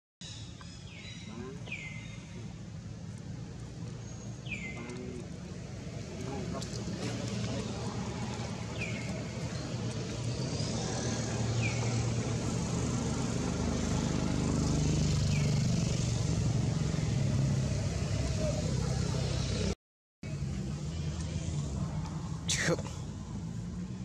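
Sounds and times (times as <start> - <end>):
vehicle engine humming: 0.5 - 24.0
bird chirps: 3.9 - 5.2.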